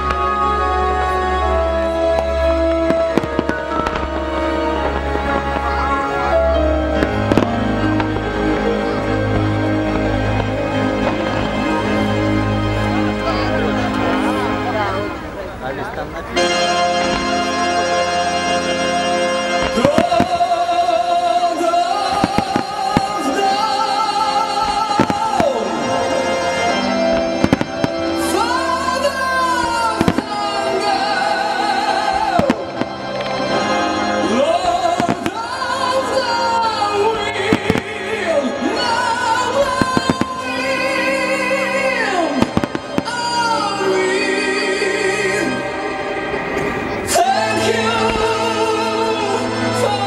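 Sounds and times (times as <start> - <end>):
fireworks bangs: 0.0 - 50.0
orchestral soundtrack: 0.0 - 50.0
loud music with singing: 19.7 - 50.0.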